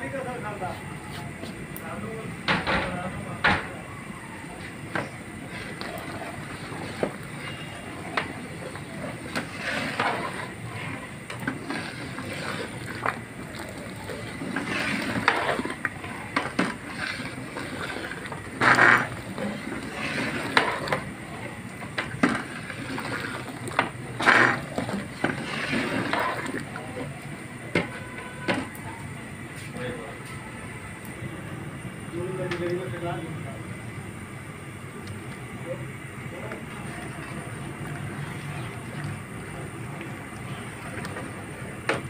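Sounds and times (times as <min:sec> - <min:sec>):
liquid swishing: 0:04.6 - 0:28.2, 0:36.3 - 0:41.7
metal ladle scraping a pot: 0:05.0 - 0:21.1, 0:22.0 - 0:26.6.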